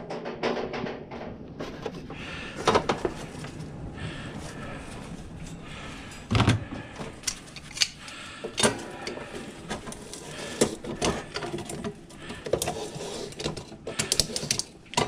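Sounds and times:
metal clicks of pliers: 7.2s - 8.8s.

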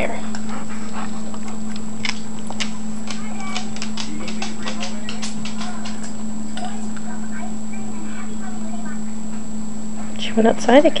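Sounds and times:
steady low hum: 0.0s - 11.0s
dog crunching dry kibble: 1.2s - 6.2s.

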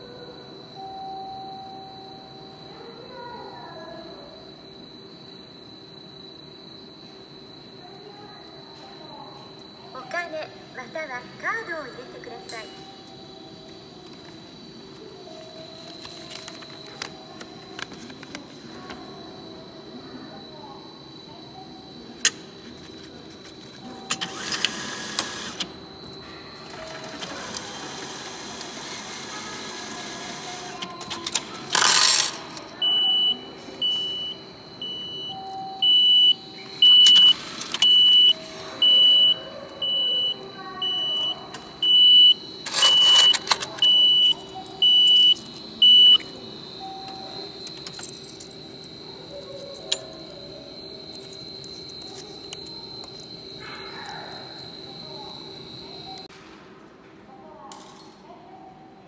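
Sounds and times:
banknote feed whirring: 23.8s - 26.0s, 26.6s - 32.4s, 36.4s - 39.4s
high electronic beep: 32.8s - 48.0s.

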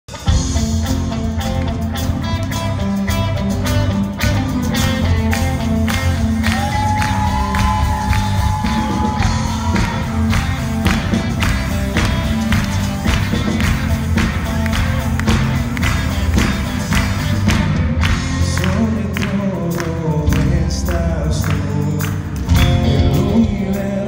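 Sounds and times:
drum kit steady beat: 0.1s - 24.0s
worship band playing: 0.1s - 24.0s.

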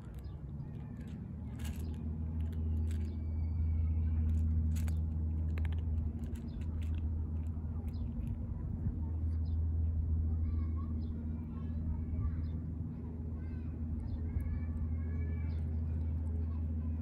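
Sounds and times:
cat chewing dry kibble: 0.0s - 3.1s, 4.2s - 8.4s
low engine hum: 0.0s - 17.0s.

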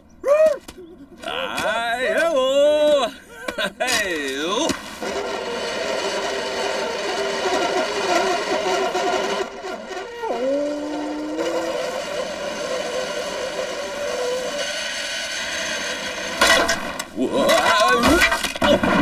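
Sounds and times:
skis sliding over snow: 3.9s - 16.5s.

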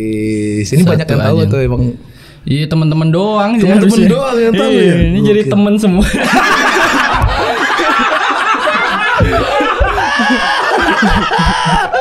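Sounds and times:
men laughing: 5.9s - 12.0s.

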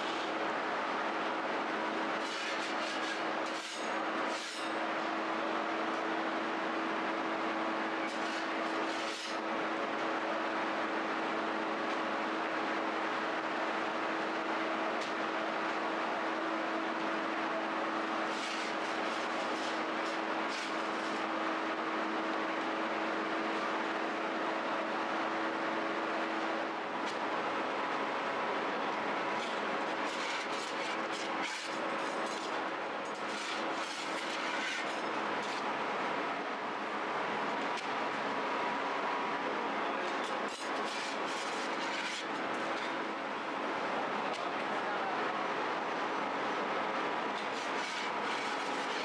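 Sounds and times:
bakery machinery running: 26.3s - 38.1s, 39.6s - 43.8s, 47.2s - 49.0s.

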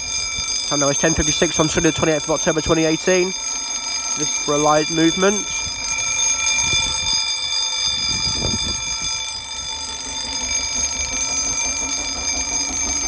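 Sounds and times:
level crossing bells ringing: 0.0s - 13.0s.

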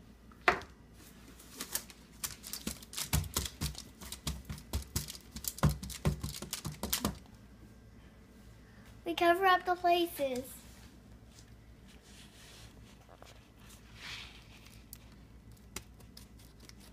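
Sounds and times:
aluminium foil crinkling: 1.4s - 7.2s, 14.4s - 16.9s
hands patting play-dough: 1.6s - 7.2s, 14.4s - 16.9s.

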